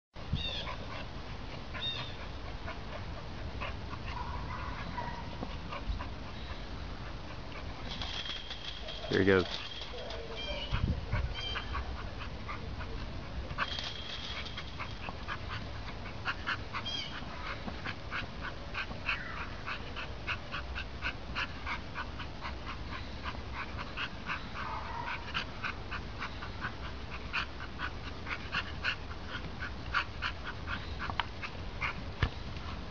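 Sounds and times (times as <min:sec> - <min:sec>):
ball bouncing ticks: 0:29.4 - 0:30.0.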